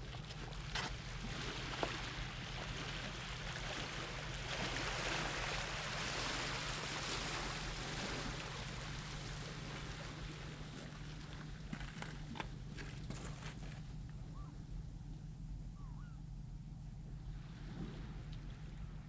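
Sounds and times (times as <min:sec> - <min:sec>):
waves washing over stones: 0:00.6 - 0:11.9.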